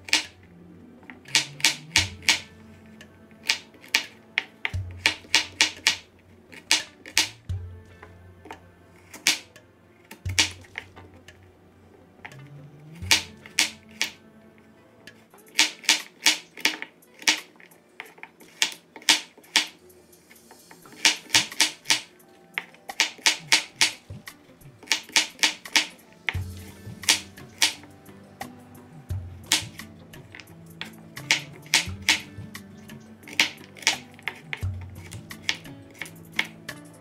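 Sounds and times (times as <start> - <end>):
knife chopping on wooden board: 3.4 - 7.7, 10.3 - 10.9, 13.0 - 14.2.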